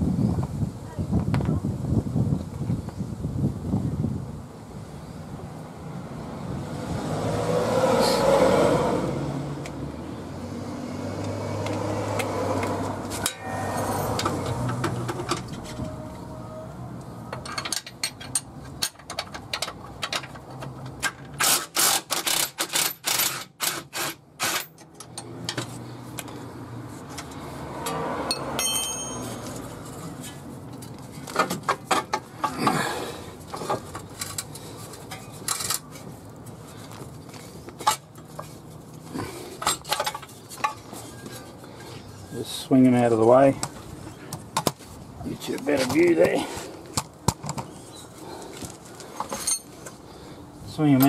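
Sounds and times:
metal clinks and knocks: 13.1 - 16.0, 17.3 - 23.8, 27.8 - 32.7, 39.5 - 41.9, 49.2 - 50.0.

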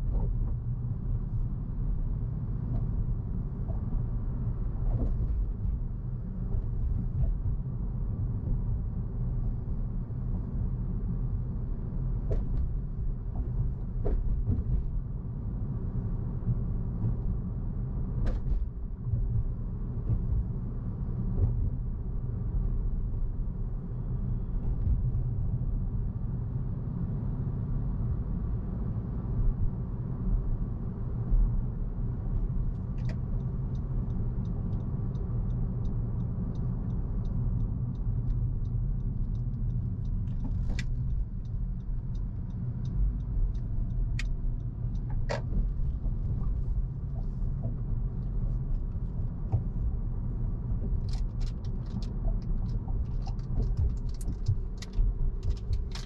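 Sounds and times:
road and engine rumble: 0.0 - 56.0
faint regular ticking: 32.7 - 46.2.

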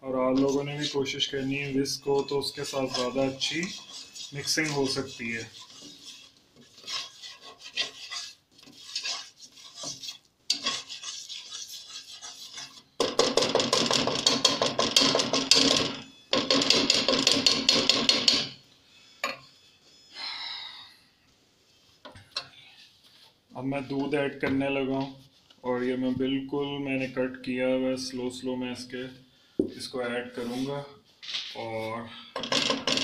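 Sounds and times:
whisk scraping saucepan: 0.1 - 18.6.

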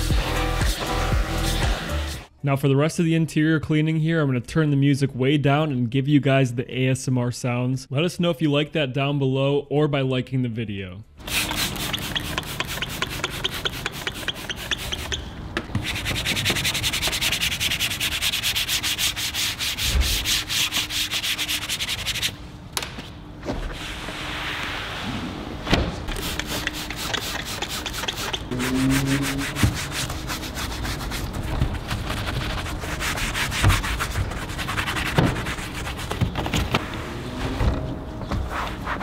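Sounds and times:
brush scrubbing car door trim: 11.2 - 15.2, 15.8 - 22.4, 26.2 - 36.6.

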